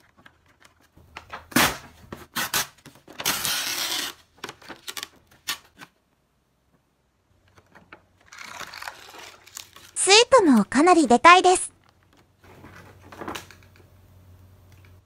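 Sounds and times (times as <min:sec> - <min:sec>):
plastic packaging crackling: 0:08.2 - 0:10.0.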